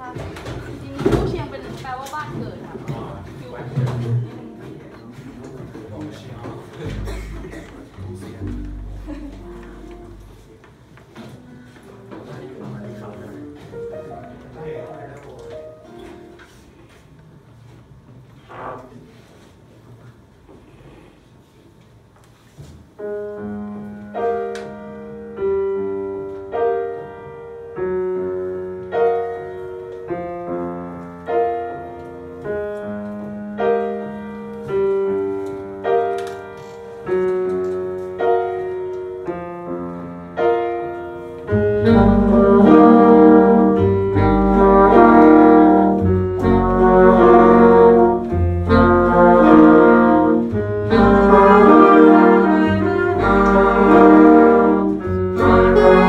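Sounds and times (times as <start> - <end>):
piano notes and chords: 0.0 - 16.8, 22.9 - 56.0
brass saxophones and bass playing: 6.8 - 10.5, 41.5 - 56.0.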